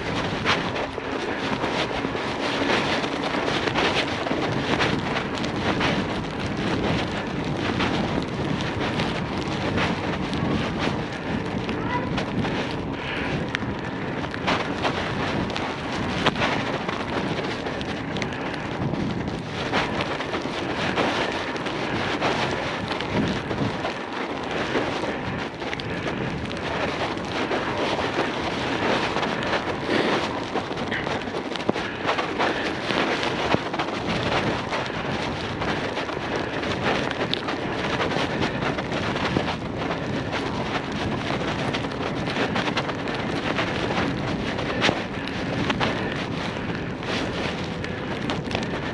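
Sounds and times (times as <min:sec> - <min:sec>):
bicycle tyres rolling on snow: 0:00.0 - 0:48.9
wind on microphone: 0:00.0 - 0:48.9.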